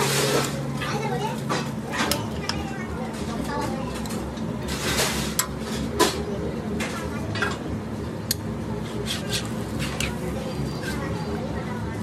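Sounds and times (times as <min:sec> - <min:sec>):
steady background noise: 0:00.0 - 0:12.0
metal spatula scraping griddle: 0:04.6 - 0:06.1, 0:08.9 - 0:10.2.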